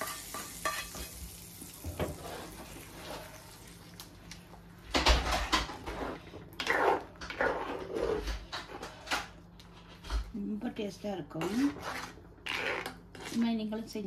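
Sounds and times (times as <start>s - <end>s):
spoon scraping clay pot: 5.9s - 9.0s, 11.0s - 13.6s.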